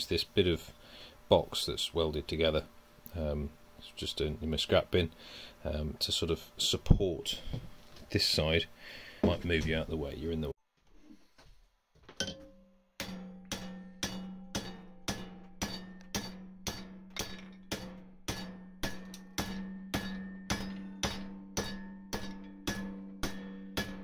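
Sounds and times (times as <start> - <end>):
hammer striking steel strip: 12.2 - 24.0.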